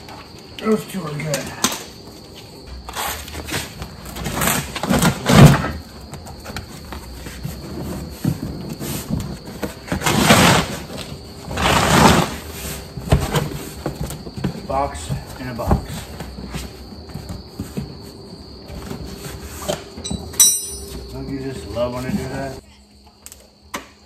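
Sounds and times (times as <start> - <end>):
cardboard scraping and tearing: 2.9 - 5.7, 9.8 - 13.4.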